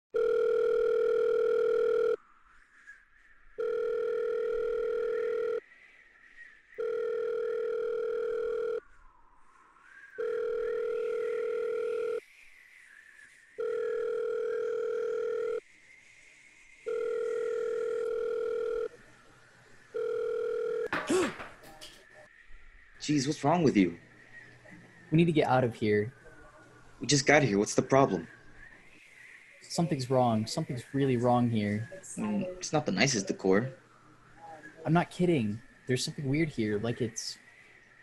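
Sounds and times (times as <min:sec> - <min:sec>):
video call ringing tone: 0:00.1 - 0:02.2, 0:03.6 - 0:05.6, 0:06.8 - 0:08.8, 0:10.2 - 0:12.2, 0:13.6 - 0:15.6, 0:16.9 - 0:18.9, 0:19.9 - 0:21.1.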